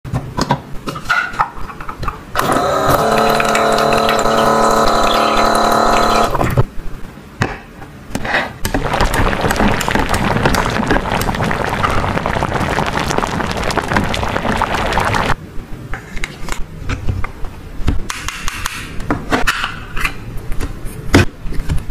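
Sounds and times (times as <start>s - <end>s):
toy pump whirring: 2.4s - 6.4s
water running from faucet: 2.4s - 6.4s, 8.8s - 15.4s
water sloshing and bubbling: 8.7s - 15.4s.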